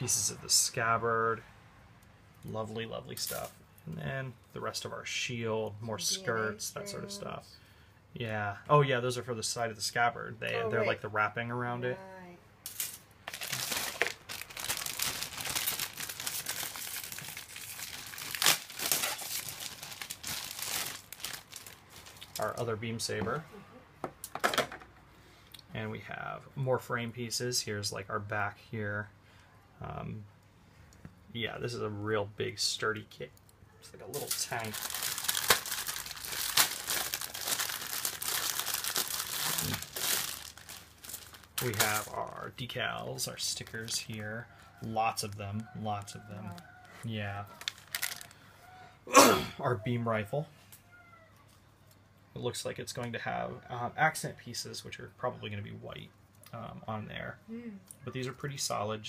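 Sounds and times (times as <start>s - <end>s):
plastic bags crinkling: 12.7s - 22.7s, 34.2s - 42.4s, 47.5s - 48.4s.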